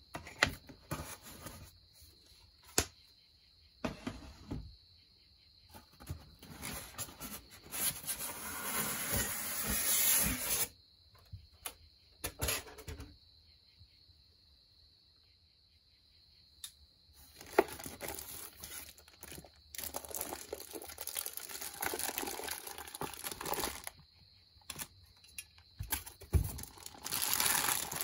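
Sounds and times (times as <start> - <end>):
styrofoam scraping in cardboard box: 6.4 - 10.7.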